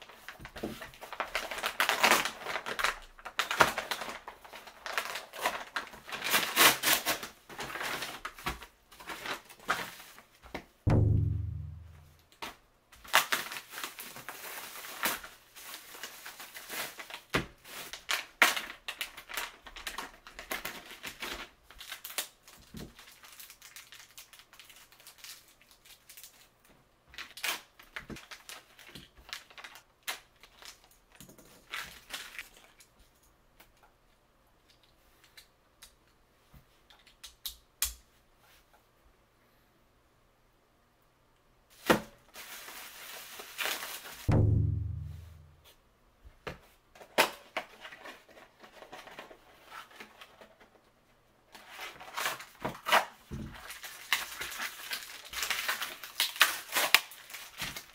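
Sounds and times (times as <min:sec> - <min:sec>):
cardboard and plastic packaging tearing: 0:00.0 - 0:10.3, 0:13.0 - 0:26.5, 0:27.1 - 0:30.9, 0:31.6 - 0:32.8, 0:41.8 - 0:44.3, 0:51.6 - 0:57.9
plastic crinkling: 0:00.0 - 0:10.5, 0:13.0 - 0:26.5, 0:27.1 - 0:32.9, 0:41.8 - 0:45.5, 0:51.6 - 0:57.9.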